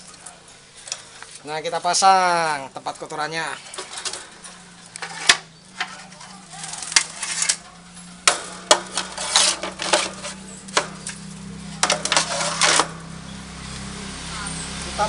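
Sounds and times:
tray clicking against wire cage: 3.7 - 13.0.

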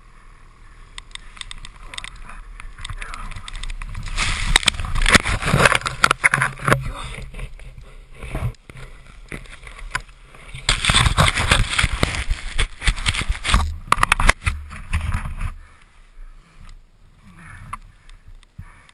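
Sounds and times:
snow scraping over camera: 2.4 - 13.9.

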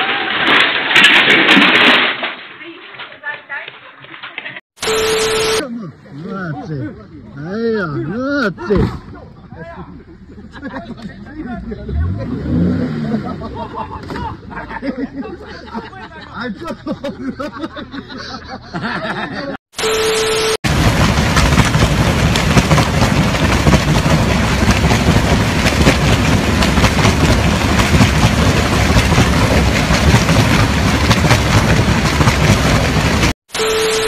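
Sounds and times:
static glitch with beep: 4.8 - 5.6, 19.8 - 20.6, 33.5 - 34.0
loud rushing roar: 20.7 - 33.3.

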